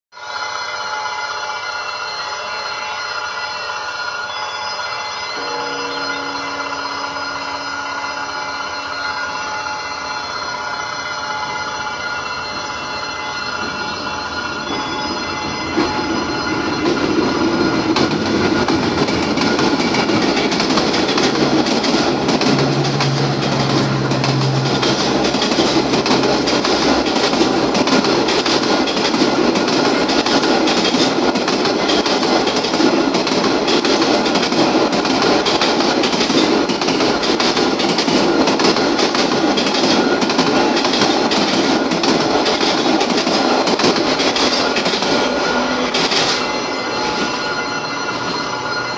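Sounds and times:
steel wheels on rails: 0:00.4 - 0:48.9
wheels clattering over rail joints: 0:15.7 - 0:47.5.

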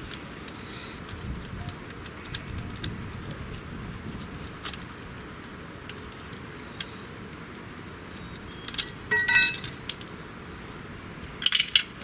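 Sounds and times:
low background hum: 0:00.0 - 0:12.0
metal hardware clinking: 0:08.7 - 0:09.8.

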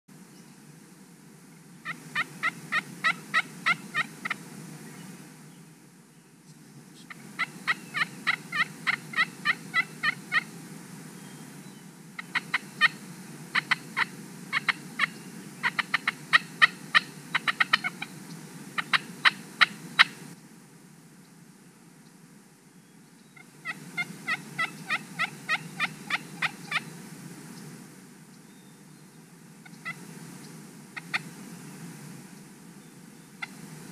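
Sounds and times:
turkey calls: 0:01.8 - 0:04.4, 0:07.0 - 0:10.5, 0:12.2 - 0:18.2, 0:18.8 - 0:20.3, 0:23.4 - 0:26.9, 0:29.6 - 0:30.0, 0:31.0 - 0:31.3, 0:33.4 - 0:33.6.

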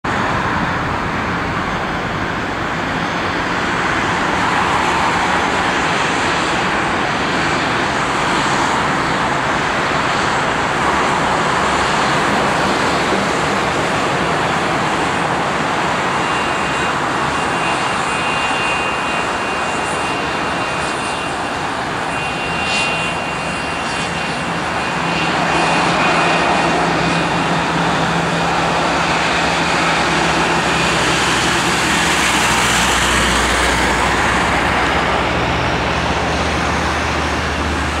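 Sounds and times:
jet engines rushing at taxi power: 0:00.0 - 0:38.0
thin high whine: 0:15.9 - 0:35.7.

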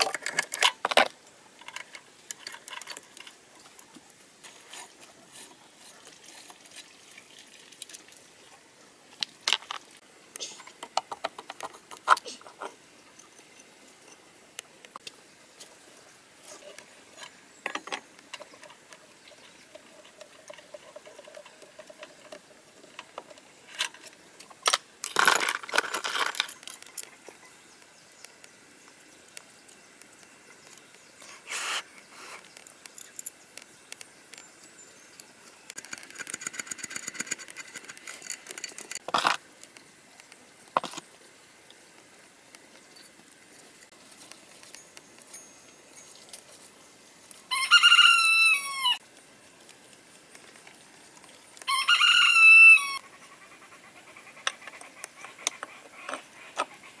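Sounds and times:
metal parts and tools clinking: 0:00.0 - 0:03.8, 0:16.5 - 0:27.2, 0:35.7 - 0:39.4.

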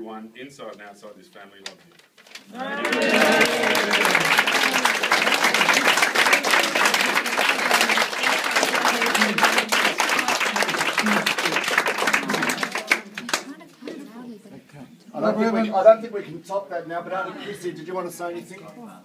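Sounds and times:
voices calling out: 0:02.5 - 0:09.7
crowd applauding: 0:02.5 - 0:13.6.

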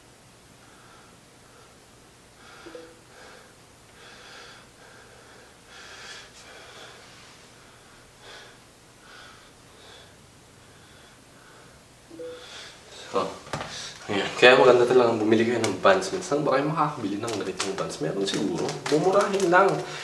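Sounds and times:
man breathing hard: 0:02.4 - 0:07.0.

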